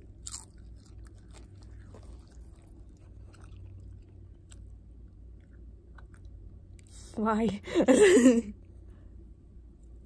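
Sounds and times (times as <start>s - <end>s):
faint chewing with crunches: 0.0s - 7.2s
low steady hum: 0.0s - 10.0s.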